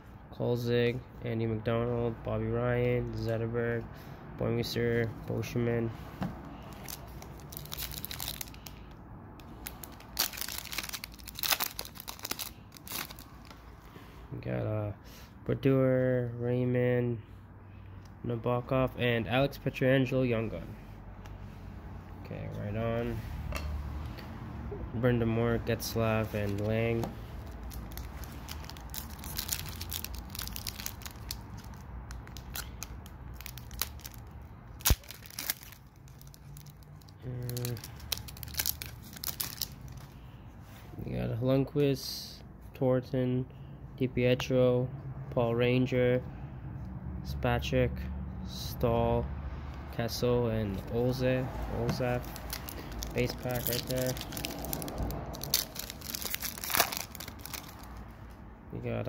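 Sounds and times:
foil wrapper crinkling and tearing: 6.6 - 8.8, 9.4 - 13.6, 27.5 - 40.1, 52.0 - 58.0
foil wrapper snapping: 34.8 - 36.8, 37.5 - 39.7, 52.2 - 57.9.

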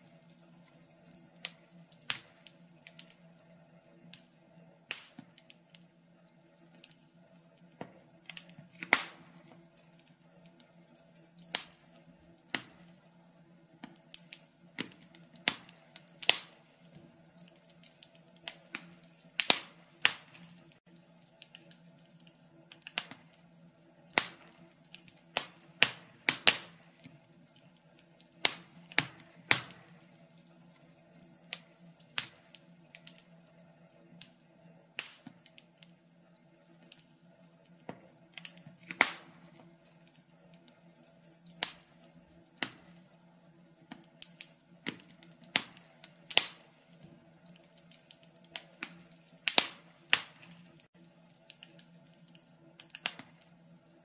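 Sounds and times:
log fire crackling: 0.0 - 54.0.

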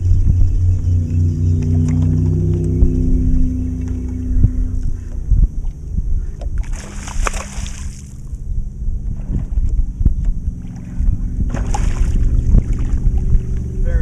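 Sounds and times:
low steady hum: 0.0 - 14.0
water splashing around boat: 0.0 - 14.0
loud splash: 6.6 - 8.2, 10.8 - 13.0.

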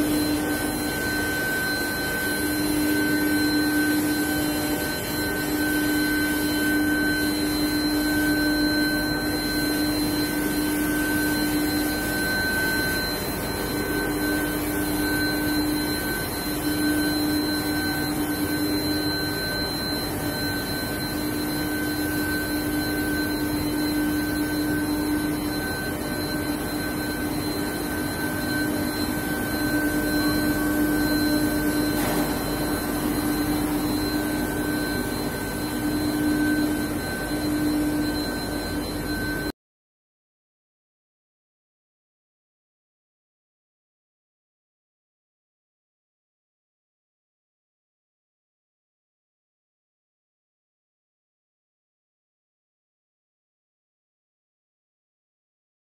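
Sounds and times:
machine drone and hum: 0.0 - 39.5
high machine whine: 0.0 - 39.6.

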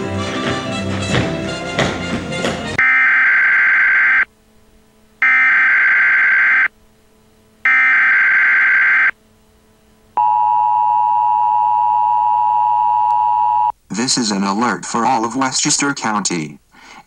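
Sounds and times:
two-tone attention signal: 5.2 - 6.7.

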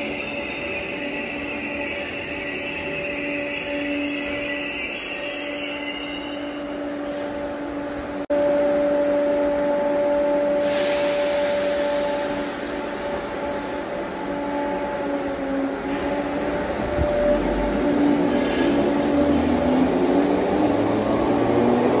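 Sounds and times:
sudden hiss: 10.6 - 13.4.

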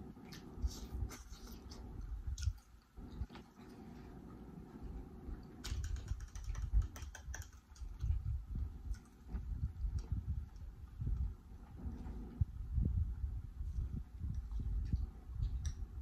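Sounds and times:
chewing food: 0.1 - 11.3.

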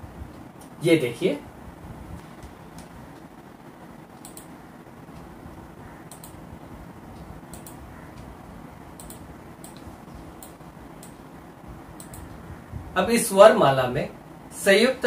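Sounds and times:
low room hum: 0.0 - 15.0
light sharp clicks: 6.1 - 6.4, 7.1 - 8.3, 9.0 - 11.2, 12.0 - 12.4.

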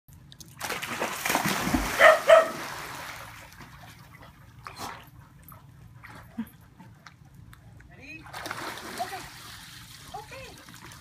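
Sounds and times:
dog splashing into pool: 0.6 - 5.1, 8.2 - 11.0
dog barking: 2.0 - 2.6.

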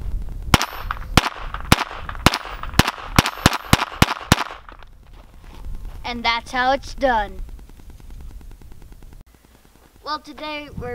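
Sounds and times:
handgun shots: 0.6 - 4.8.

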